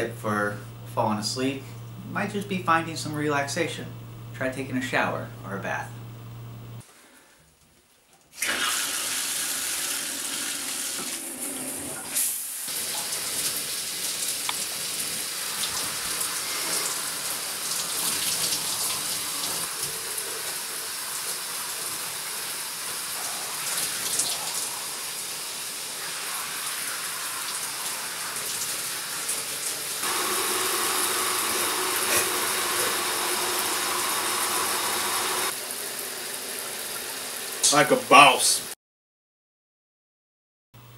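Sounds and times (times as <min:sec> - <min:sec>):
shower spraying into bathtub: 0:08.3 - 0:38.6.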